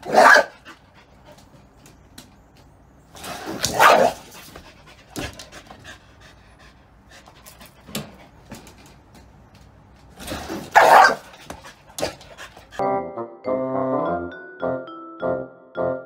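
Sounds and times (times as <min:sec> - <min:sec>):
dog barking: 0:00.0 - 0:00.6, 0:03.7 - 0:04.2, 0:10.7 - 0:11.3.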